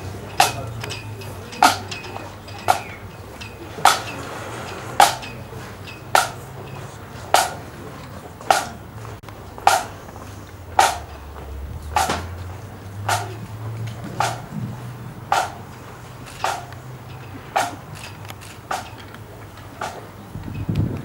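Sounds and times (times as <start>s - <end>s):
sharp ringing knocks: 5.0s - 6.5s, 8.5s - 8.8s, 9.7s - 10.0s, 10.8s - 11.2s, 13.1s - 13.5s, 14.1s - 14.7s, 15.3s - 15.7s, 16.3s - 18.0s.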